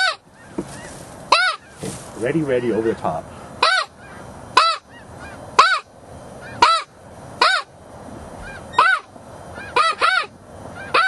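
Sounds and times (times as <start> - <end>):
goose yelping calls: 0.0 - 1.8, 3.6 - 7.7, 8.4 - 11.0
faint geese calls: 0.0 - 7.7, 8.4 - 11.0.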